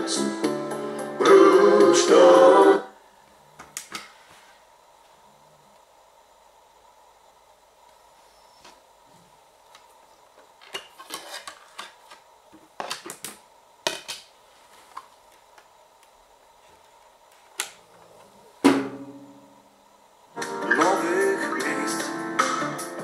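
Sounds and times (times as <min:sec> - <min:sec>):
loud thump: 0:18.6 - 0:19.4
radio music from small speakers: 0:20.3 - 0:23.0.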